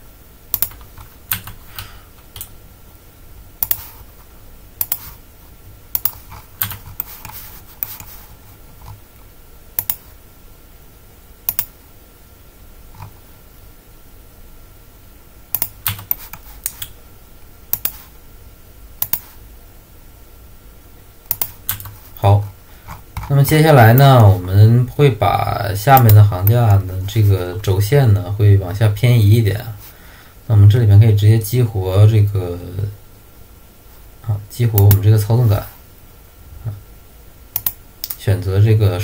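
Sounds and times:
faint high hum: 0:00.0 - 0:39.0
keyboard and mouse clicks: 0:00.5 - 0:02.5, 0:03.6 - 0:03.9, 0:04.8 - 0:05.1, 0:05.9 - 0:08.1, 0:09.8 - 0:10.1, 0:11.5 - 0:11.7, 0:15.5 - 0:17.0, 0:17.8 - 0:18.0, 0:19.0 - 0:19.3, 0:21.3 - 0:22.0, 0:37.6 - 0:38.2.

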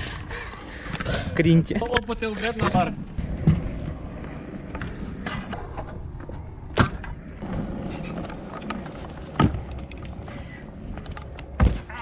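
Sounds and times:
scooter wheels rolling on asphalt: 0:07.3 - 0:12.0.

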